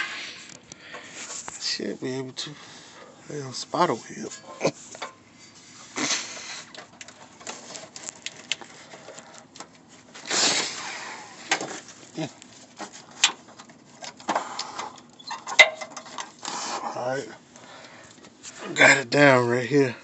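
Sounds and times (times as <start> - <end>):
rustling scrape: 1.1 - 1.8, 3.9 - 14.0.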